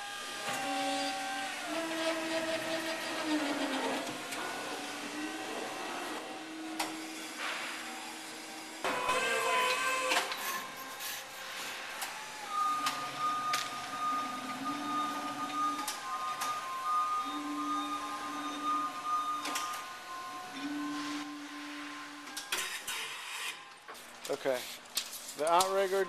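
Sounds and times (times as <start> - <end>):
electric motor whining: 0.0 - 10.7.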